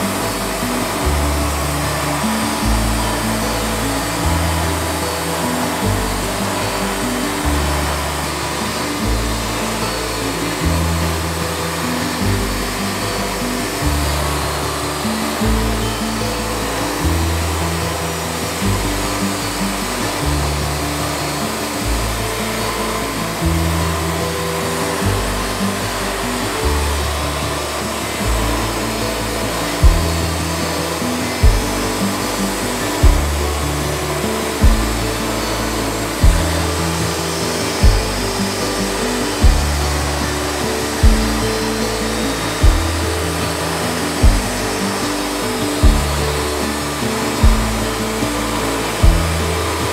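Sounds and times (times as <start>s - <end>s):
background music with bass line: 0.0s - 49.9s
bandsaw mill sawing log: 0.0s - 49.9s
sharp beat: 29.8s - 30.8s, 31.4s - 35.3s, 36.1s - 38.8s, 39.4s - 41.8s, 42.5s - 46.5s, 47.4s - 48.1s, 49.0s - 49.5s.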